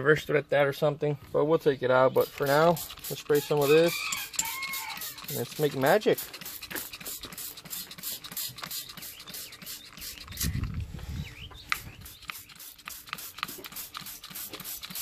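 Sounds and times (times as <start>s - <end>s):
spray bottle squirts: 2.2s - 10.8s, 11.7s - 15.0s.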